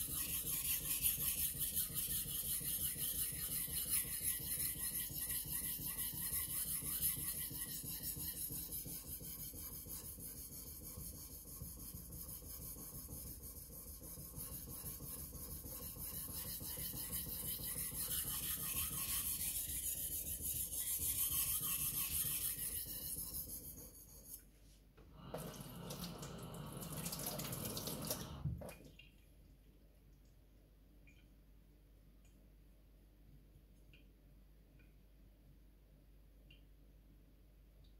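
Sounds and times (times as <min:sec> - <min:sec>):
knife scraping on whetstone: 0:00.0 - 0:24.4.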